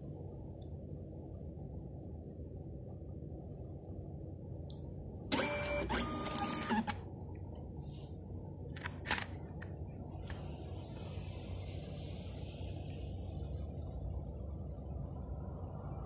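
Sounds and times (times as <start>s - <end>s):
steady low hum: 0.0s - 16.0s
label printer motor whine: 5.3s - 7.0s.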